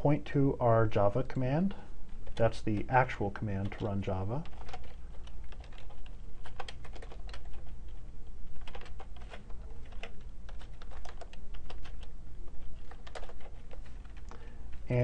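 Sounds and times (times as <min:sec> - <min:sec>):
typing on a computer keyboard: 0:02.2 - 0:14.5.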